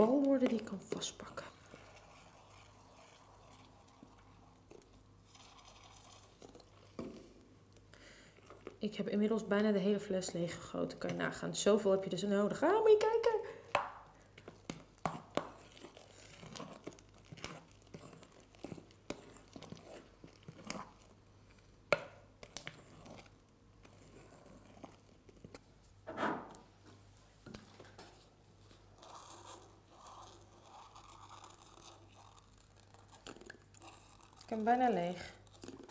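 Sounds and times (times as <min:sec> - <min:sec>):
spatula stirring slime: 0:00.0 - 0:13.4, 0:14.0 - 0:25.8, 0:28.0 - 0:35.9
slime crackling and squelching: 0:14.2 - 0:21.7, 0:29.0 - 0:35.9.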